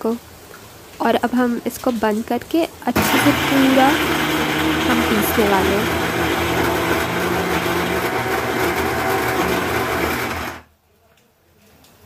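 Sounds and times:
mixer grinder motor running: 3.0 - 10.7.

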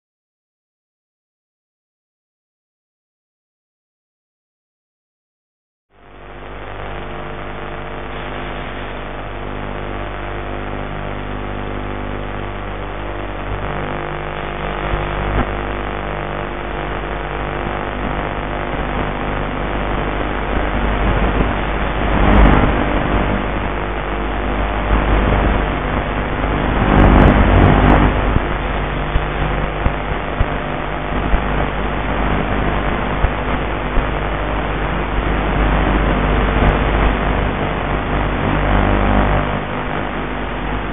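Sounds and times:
rushing air: 25.0 - 29.2.

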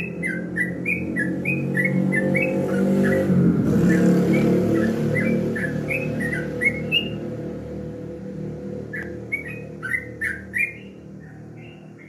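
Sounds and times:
bird chirping: 0.0 - 7.8, 8.4 - 12.0
low hum: 3.5 - 12.0.

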